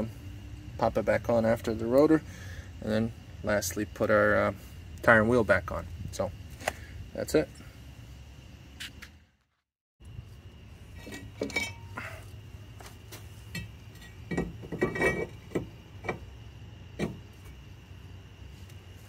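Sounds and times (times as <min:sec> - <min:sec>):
brake rotor clinking on hub: 0:10.9 - 0:12.1, 0:13.4 - 0:17.6.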